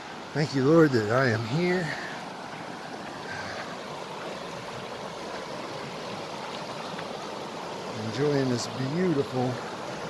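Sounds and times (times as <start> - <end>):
creek rushing over rocks: 0.0 - 10.0.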